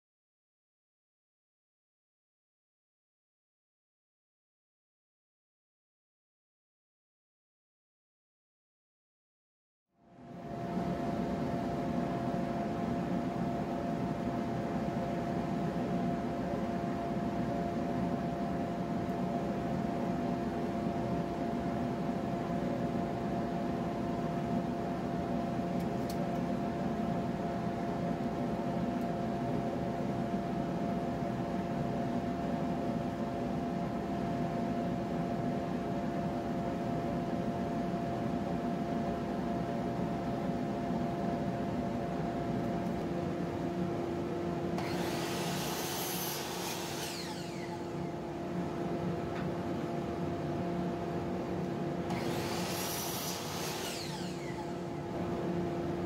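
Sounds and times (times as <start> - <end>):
dust vacuum humming: 44.7 - 56.0
harsh hissing rasp: 45.0 - 47.3, 52.3 - 54.4.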